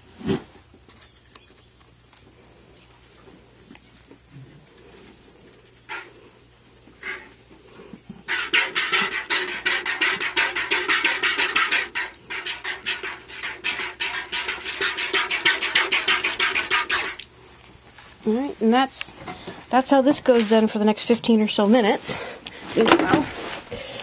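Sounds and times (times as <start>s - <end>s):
milk squirting into bucket: 8.3s - 17.3s.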